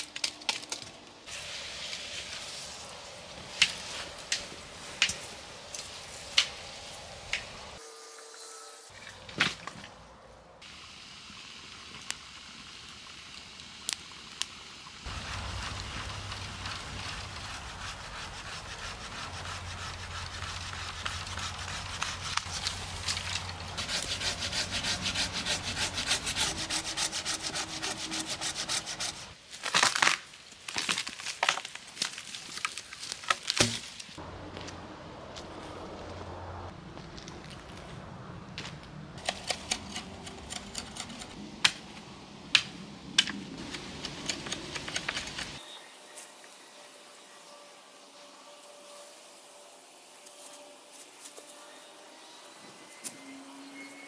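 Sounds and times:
hand saw cutting branch: 17.1s - 29.4s, 39.2s - 41.4s.

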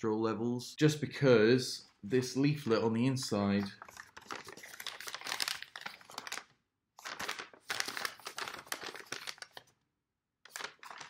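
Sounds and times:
paper leaflet crinkling and rustling: 2.1s - 9.8s, 10.4s - 11.0s.

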